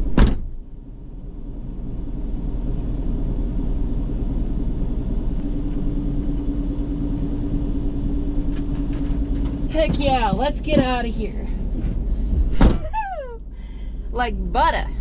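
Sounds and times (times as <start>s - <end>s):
loud thump: 0.0s - 0.6s, 11.8s - 13.0s
engine idling with low rumble: 0.0s - 15.0s
steady hum: 0.0s - 15.0s.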